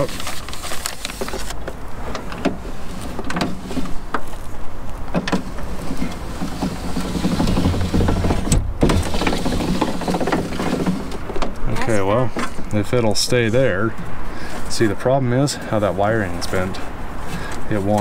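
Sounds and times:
window regulator humming: 0:05.1 - 0:11.6.

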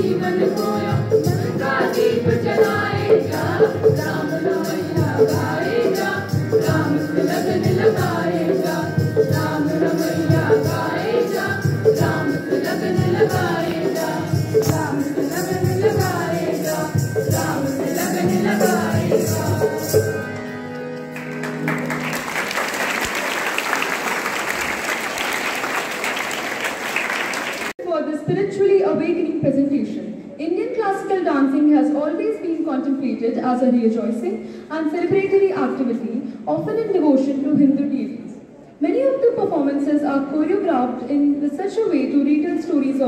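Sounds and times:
drum and jingle beat: 0:00.0 - 0:20.2
group singing: 0:00.0 - 0:20.2
crowd applause: 0:21.1 - 0:27.7.

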